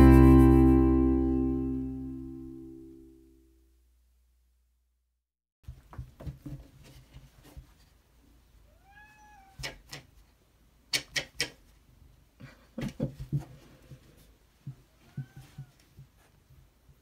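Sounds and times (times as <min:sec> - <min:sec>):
cat meowing: 0:08.7 - 0:09.8, 0:15.0 - 0:15.8.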